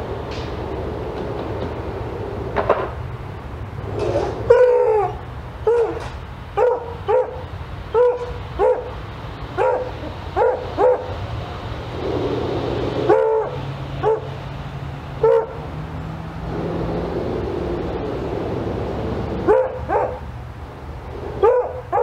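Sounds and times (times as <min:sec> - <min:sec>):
dog barking: 0:04.5 - 0:06.0, 0:06.6 - 0:09.0, 0:09.6 - 0:11.2, 0:13.1 - 0:14.4, 0:15.2 - 0:15.6, 0:19.4 - 0:20.3, 0:21.4 - 0:22.0.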